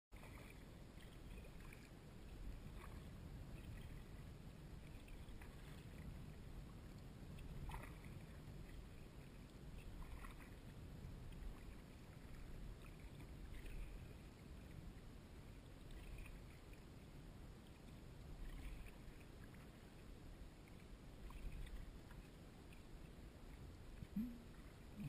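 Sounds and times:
paddle splashing in water: 0:00.1 - 0:04.2, 0:07.4 - 0:10.7, 0:11.3 - 0:14.3, 0:18.4 - 0:22.9
low steady rumble: 0:00.2 - 0:25.0.

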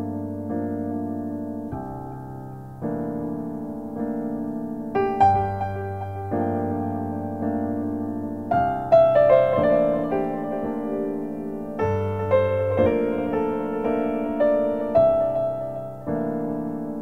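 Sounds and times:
slow piano chords: 0:00.0 - 0:17.0.

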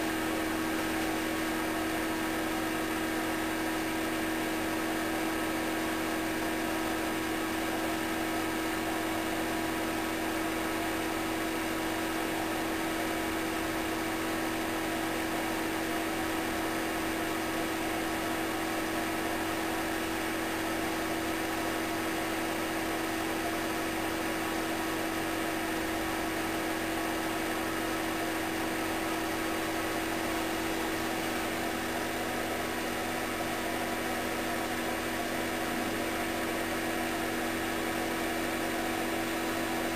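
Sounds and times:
electrical hum: 0:27.5 - 0:39.9.

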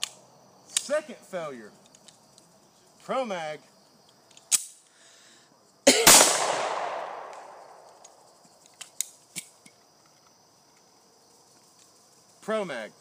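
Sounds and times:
pistol handling clicks: 0:04.3 - 0:04.8, 0:06.1 - 0:09.8
pistol shots: 0:06.0 - 0:08.0.

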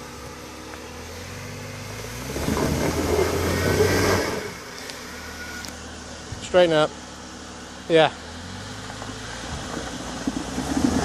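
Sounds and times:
engine revving under load: 0:00.0 - 0:05.8, 0:08.1 - 0:11.0.

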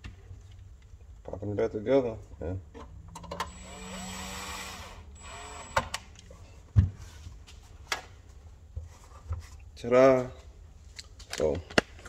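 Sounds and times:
cordless drill driving screws: 0:03.4 - 0:06.0.

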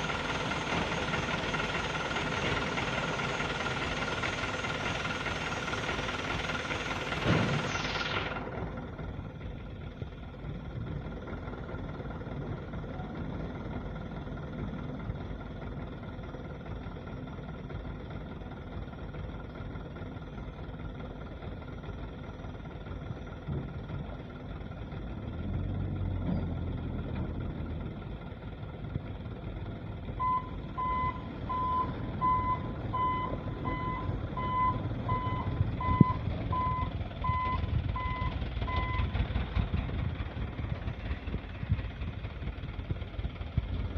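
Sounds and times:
truck engines rumbling: 0:00.0 - 0:43.9
reversing alarm beeping: 0:30.2 - 0:39.1.

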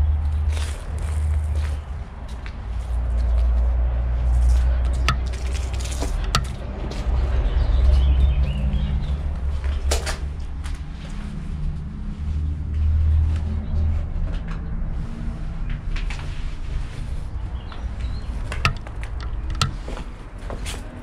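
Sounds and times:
sharp knocks and clicks: 0:04.9 - 0:06.8, 0:18.4 - 0:20.1.

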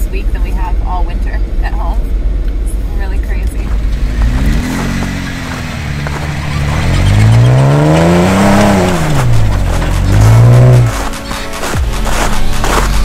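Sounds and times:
car engine revving: 0:00.0 - 0:13.0
tires spinning in snow: 0:03.6 - 0:13.0.

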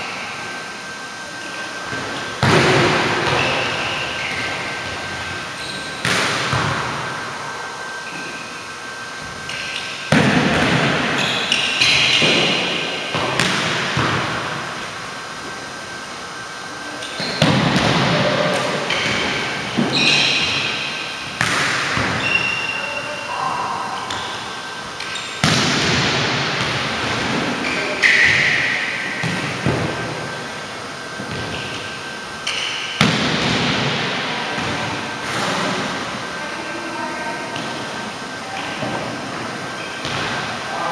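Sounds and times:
volleyball smacks echoing in hall: 0:01.7 - 0:08.5, 0:09.1 - 0:16.0, 0:17.0 - 0:40.9
high squeak: 0:19.9 - 0:20.4, 0:22.2 - 0:24.4.

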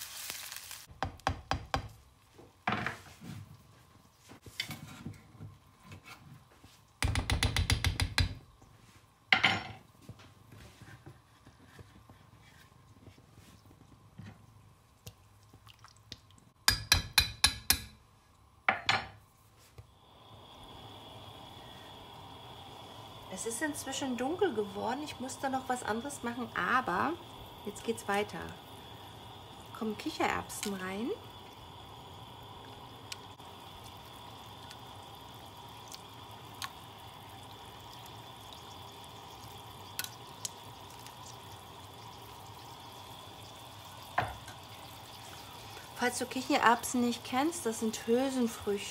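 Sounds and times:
spoon tapping frying pan rim: 0:16.7 - 0:18.0
curry simmering in a pan: 0:20.0 - 0:48.9.

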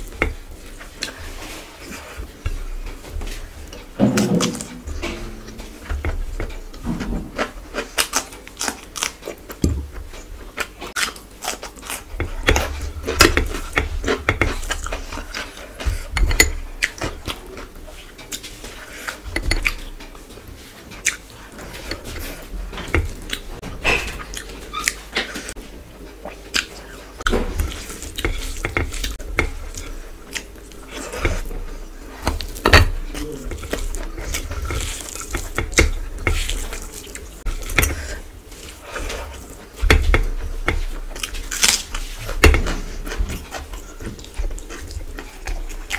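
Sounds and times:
chewing: 0:04.8 - 0:45.9
fingers mixing rice on a plate: 0:11.6 - 0:23.6, 0:27.5 - 0:45.9.

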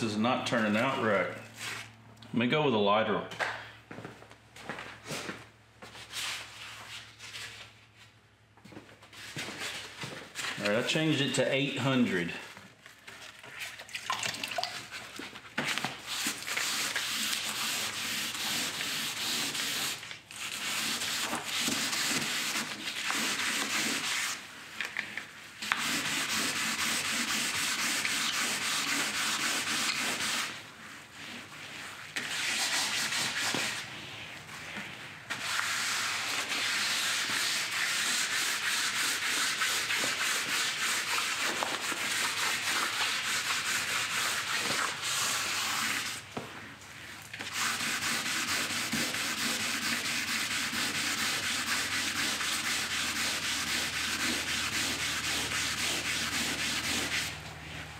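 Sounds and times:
hand wet sanding scrubbing strokes: 0:14.8 - 0:24.8, 0:25.4 - 0:57.9.

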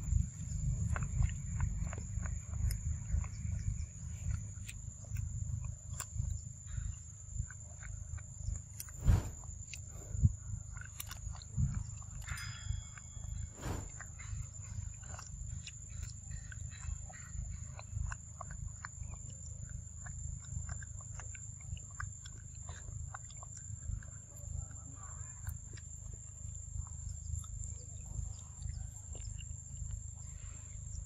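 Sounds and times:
low rumble: 0:08.9 - 0:10.7, 0:13.3 - 0:15.3.

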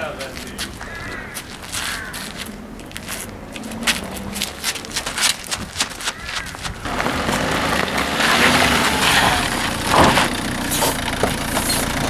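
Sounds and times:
car engine running: 0:02.6 - 0:12.0.

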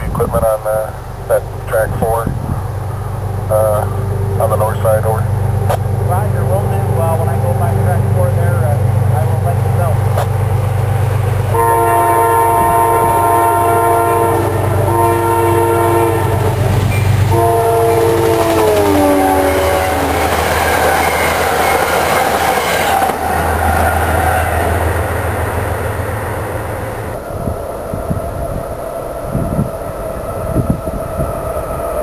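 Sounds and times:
train horn blasts: 0:11.0 - 0:25.1
train wheels clattering on rails: 0:16.4 - 0:25.6.

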